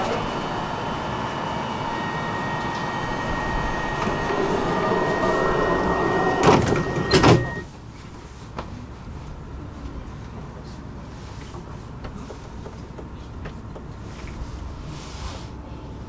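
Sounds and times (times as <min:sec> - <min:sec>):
high warning tone: 0:00.0 - 0:07.7
train background noise: 0:00.0 - 0:16.0.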